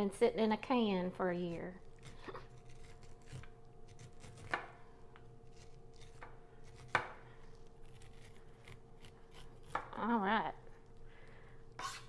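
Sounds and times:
knife scraping corn cob: 1.5 - 4.6, 7.8 - 9.9, 11.7 - 12.0.

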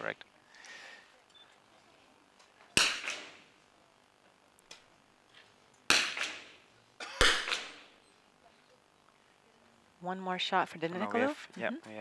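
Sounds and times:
rifle shots: 2.8 - 3.5, 5.9 - 6.6, 7.2 - 7.9.

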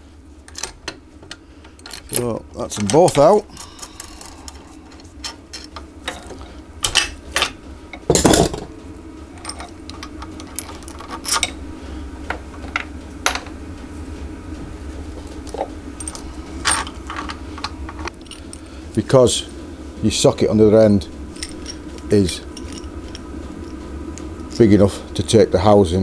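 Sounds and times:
steady low hum: 0.0 - 26.0
metal tools clinking and knocking: 21.4 - 23.2.

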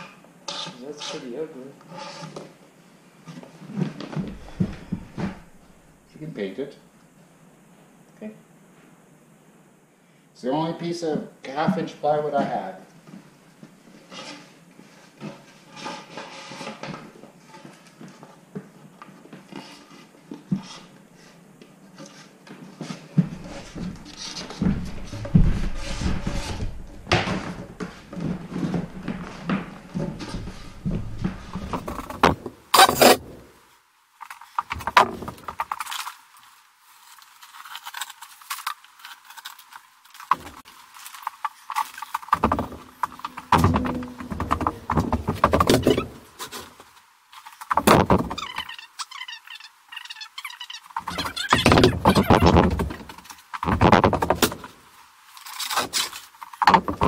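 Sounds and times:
plywood knocking and scraping: 3.7 - 5.9, 22.0 - 33.5, 34.5 - 36.0, 40.2 - 40.7, 41.7 - 46.8, 47.4 - 48.7, 51.0 - 54.8, 55.5 - 57.0.

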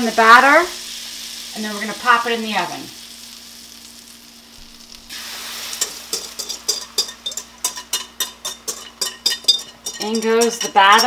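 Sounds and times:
butter sizzling in skillet: 0.0 - 11.0.

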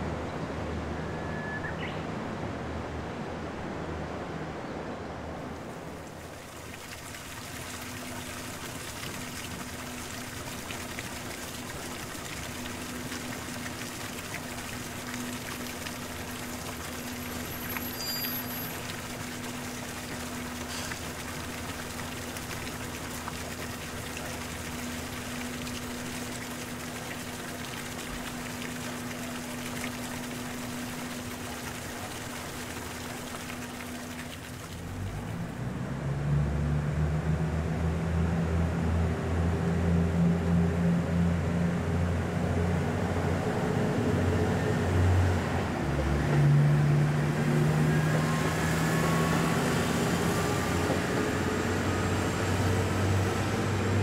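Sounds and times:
trickling water hiss: 5.4 - 36.4, 44.4 - 54.0.

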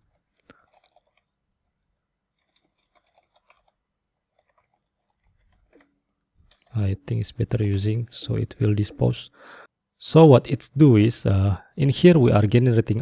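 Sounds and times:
faint keyboard typing: 0.0 - 1.4, 2.3 - 7.4.

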